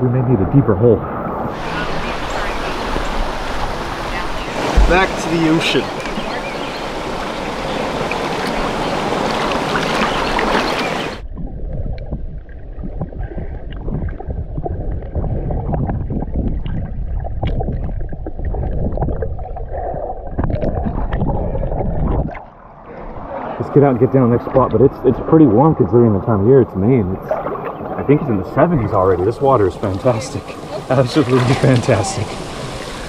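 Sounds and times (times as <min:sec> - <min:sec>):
muffled underwater rumble: 0:00.0 - 0:07.8, 0:10.0 - 0:30.0
water splashing at microphone: 0:00.5 - 0:33.0
underwater clicks and knocks: 0:04.7 - 0:06.3, 0:11.4 - 0:19.4, 0:20.3 - 0:22.5.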